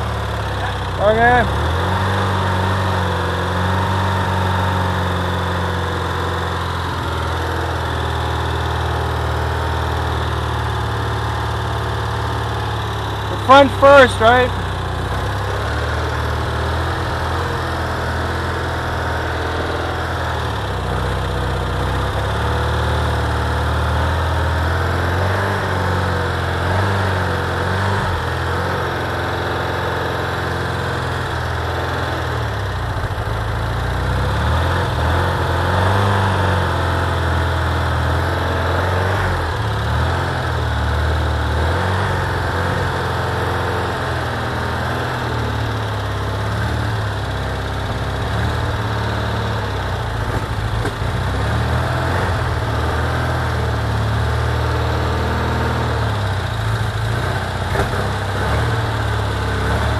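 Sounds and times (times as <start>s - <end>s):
van engine running: 0.0s - 59.9s.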